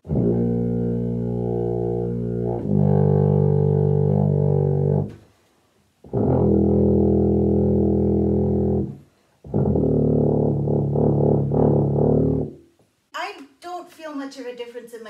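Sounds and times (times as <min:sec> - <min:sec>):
muted tuba long notes: 0:00.0 - 0:05.2, 0:06.0 - 0:12.6.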